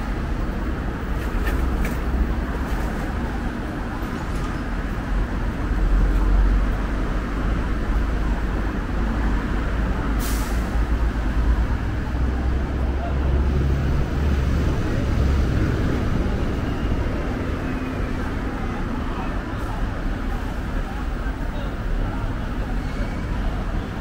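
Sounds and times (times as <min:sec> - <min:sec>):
traffic rumble: 0:00.0 - 0:24.0
air brakes hissing: 0:10.1 - 0:10.8.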